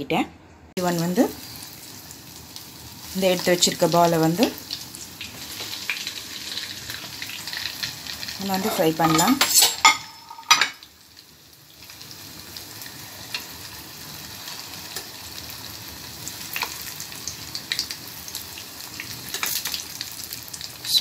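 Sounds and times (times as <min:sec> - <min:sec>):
food deep-frying in hot oil: 0:00.8 - 0:21.0
sharp oil crackles: 0:01.0 - 0:08.7.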